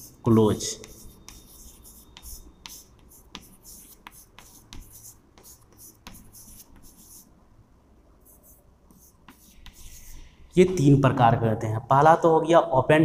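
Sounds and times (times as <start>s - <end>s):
chalk scratching on chalkboard: 0.0s - 7.3s, 8.2s - 10.8s
chalk tapping: 0.0s - 7.3s, 8.2s - 10.8s.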